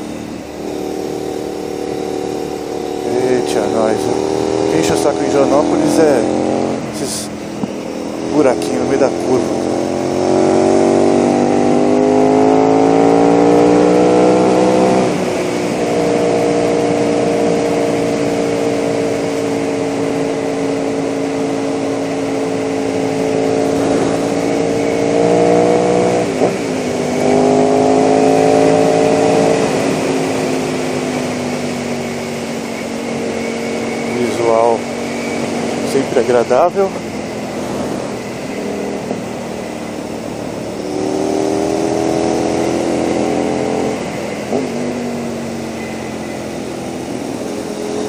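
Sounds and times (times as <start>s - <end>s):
motorcycle engine accelerating: 0.0s - 48.0s
wind rushing over microphone: 13.6s - 48.0s.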